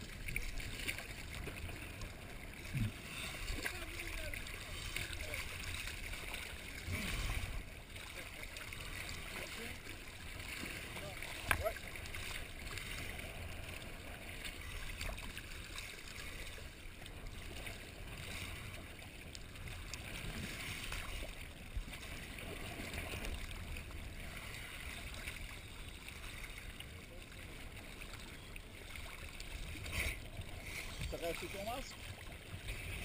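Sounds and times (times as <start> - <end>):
muffled underwater rush: 0.0 - 33.0
exhaled bubbles: 2.6 - 3.5.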